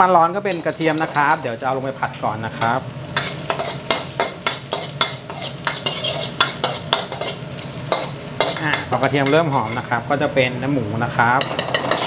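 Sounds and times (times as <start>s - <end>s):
garlic sizzling in hot oil: 0.4s - 12.0s
metal spatula scraping a wok: 0.5s - 1.9s, 2.6s - 10.0s, 11.4s - 12.0s.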